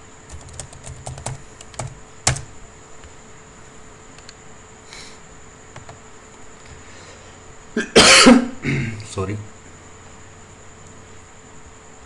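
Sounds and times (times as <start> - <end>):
keyboard typing: 0.3 - 2.5.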